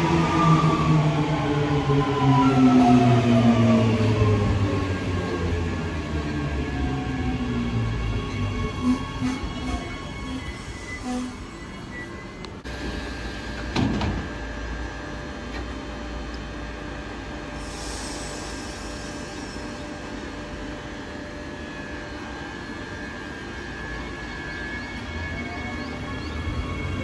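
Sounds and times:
electric train humming: 0.0 - 27.0
air hiss: 17.6 - 19.7.

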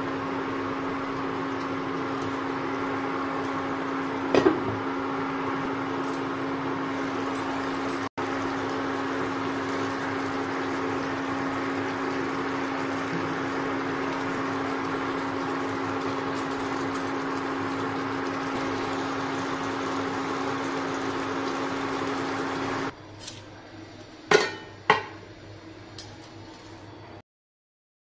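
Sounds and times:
induction cooktop humming: 0.0 - 27.2
utensils clinking on pots and dishes: 24.3 - 25.2.

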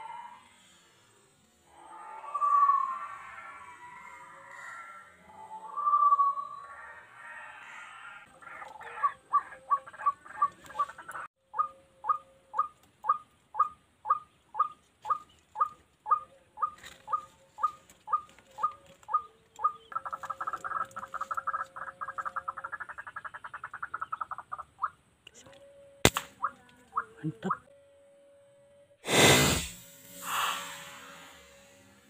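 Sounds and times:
bird chattering run: 8.7 - 25.0.

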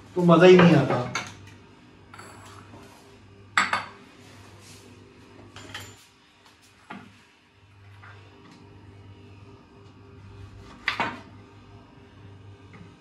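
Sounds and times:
utensils and dishes clattering: 5.5 - 6.0.

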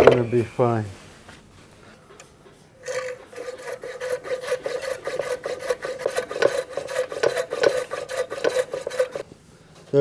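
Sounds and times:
saw cutting back and forth: 2.8 - 9.2.

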